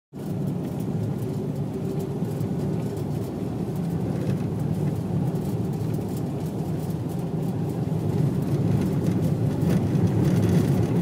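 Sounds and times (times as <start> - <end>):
car engine and road rumble: 0.1 - 11.0.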